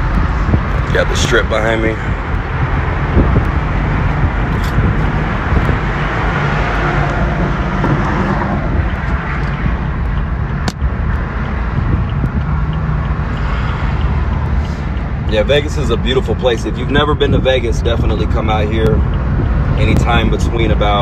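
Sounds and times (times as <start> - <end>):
road and wind noise: 0.0 - 21.0
sharp click: 8.9 - 10.9.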